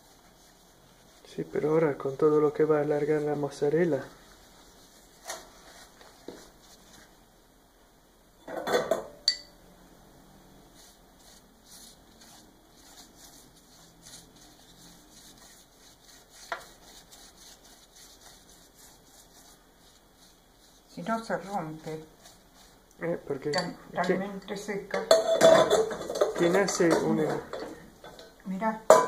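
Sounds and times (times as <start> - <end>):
pastry brush tapping and rustling: 0.0 - 7.2, 10.8 - 23.8
metal baking tray clattering: 25.0 - 27.6.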